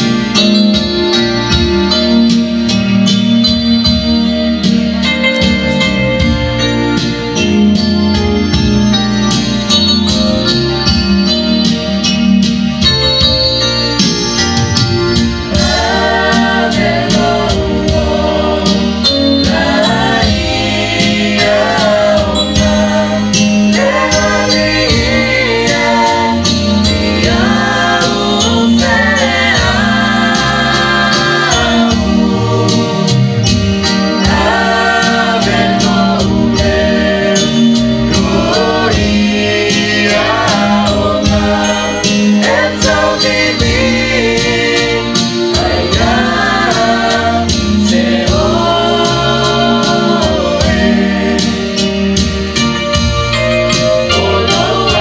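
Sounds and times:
amplified accompaniment with steady beat: 0.0 - 55.0
group singing a gospel hymn: 15.4 - 55.0.

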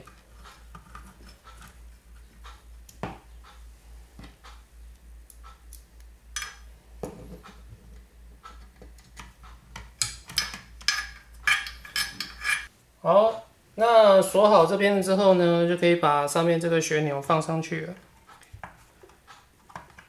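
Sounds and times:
faint low hum: 0.0 - 15.4.

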